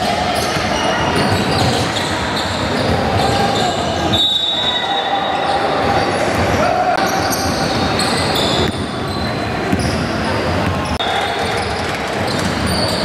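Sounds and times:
basketball bouncing: 8.4 - 10.0.

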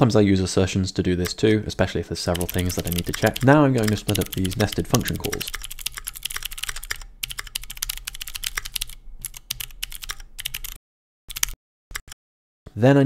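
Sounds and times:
fast typing on keyboard: 2.3 - 12.2.

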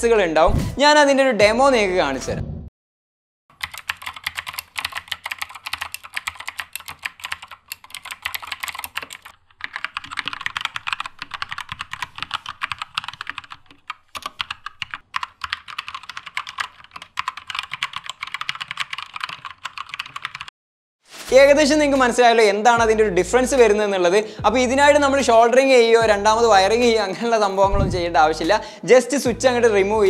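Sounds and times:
fast typing on mechanical keyboard: 3.5 - 20.5.

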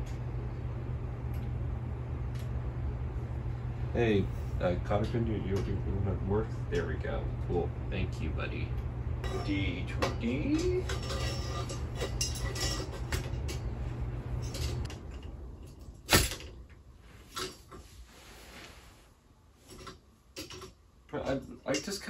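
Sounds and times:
metal poles being handled: 9.3 - 16.6, 17.2 - 18.0, 19.6 - 22.0.

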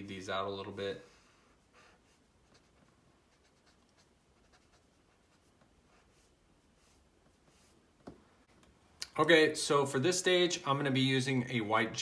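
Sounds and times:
marker scratching on paper: 1.6 - 7.8.

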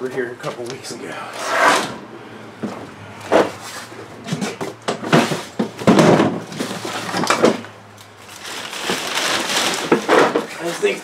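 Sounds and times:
clutter being handled: 3.4 - 11.0.

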